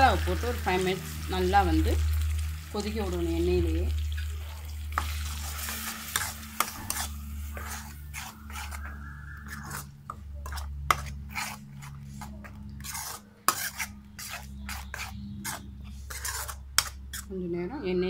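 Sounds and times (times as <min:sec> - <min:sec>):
metal spatula scraping pan: 0:04.9 - 0:17.3.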